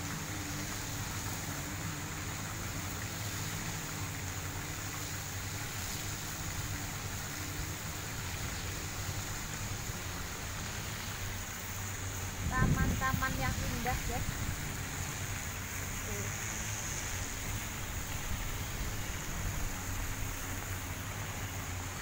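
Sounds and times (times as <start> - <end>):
fountain splashing into pond: 0.0 - 22.0
low mechanical hum: 0.0 - 22.0.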